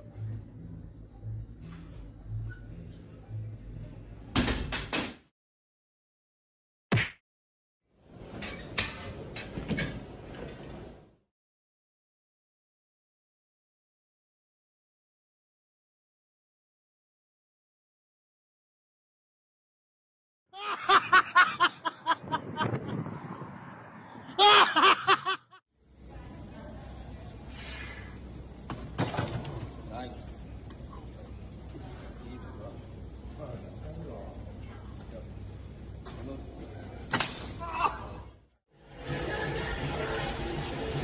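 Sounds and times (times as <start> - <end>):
people laughing: 20.6 - 22.8, 24.4 - 25.6.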